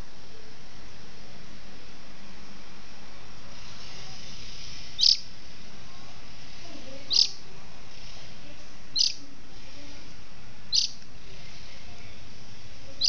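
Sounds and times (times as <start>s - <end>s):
steady hiss: 0.0s - 13.0s
small bird chirping: 3.8s - 5.3s, 6.5s - 8.2s, 8.9s - 9.2s, 10.7s - 11.6s.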